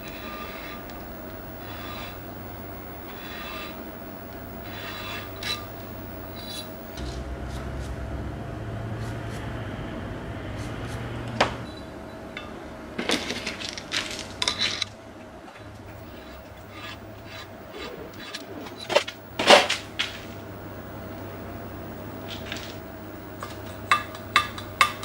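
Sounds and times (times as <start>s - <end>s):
valve seat cutter scraping metal: 0.0s - 7.0s, 15.9s - 19.7s.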